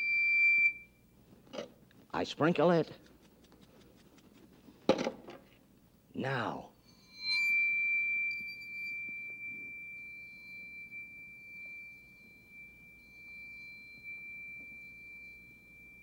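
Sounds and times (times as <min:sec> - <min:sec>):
bowed metal plate ringing tone: 0:06.7 - 0:16.0.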